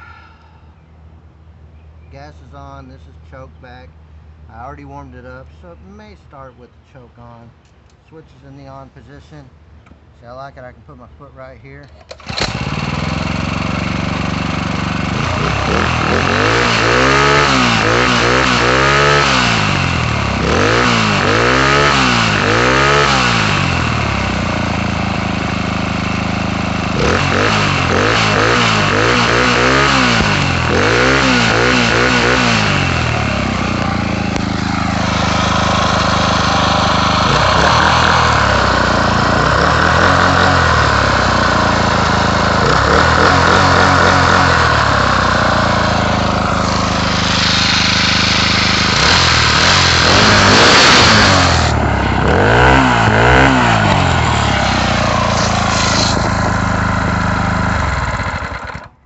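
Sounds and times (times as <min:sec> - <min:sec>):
small engine revving and idling: 0:12.1 - 0:59.0.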